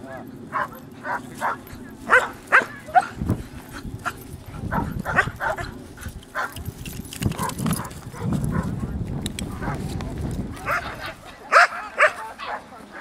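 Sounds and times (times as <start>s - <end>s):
dog barking: 0.5s - 3.2s, 4.7s - 5.8s, 7.4s - 8.9s, 10.7s - 13.0s.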